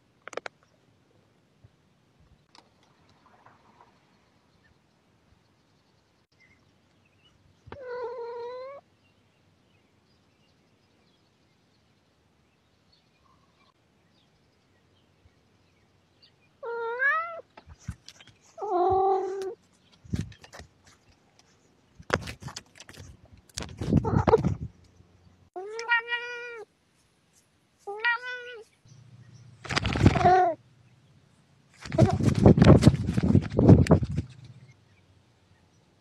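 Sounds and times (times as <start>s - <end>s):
cat meowing: 7.8s - 8.8s, 16.6s - 17.4s, 18.6s - 19.6s, 25.6s - 26.7s, 27.9s - 28.7s, 30.0s - 30.6s.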